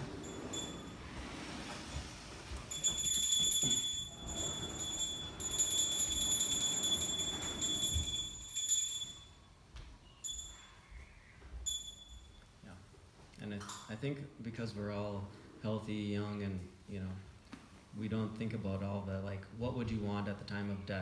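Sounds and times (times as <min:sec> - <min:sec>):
high-pitched ringing: 0:00.0 - 0:01.3, 0:02.5 - 0:12.6.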